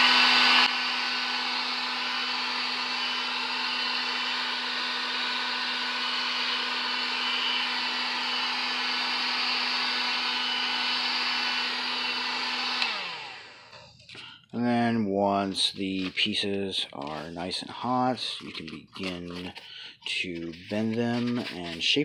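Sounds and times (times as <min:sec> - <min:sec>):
heat gun blowing air: 0:00.0 - 0:14.4.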